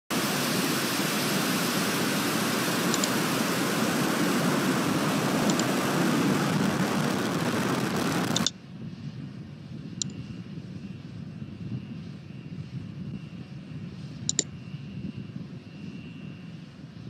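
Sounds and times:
rocket launch roar: 0:00.1 - 0:08.5.

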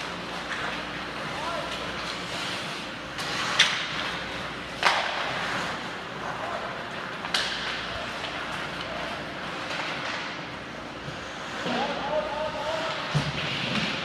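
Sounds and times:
hockey sticks cracking on puck: 0:01.6 - 0:10.3.

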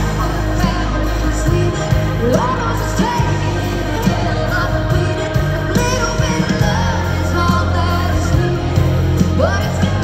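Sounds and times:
live country band playing: 0:00.0 - 0:10.0
woman singing: 0:00.4 - 0:10.0.

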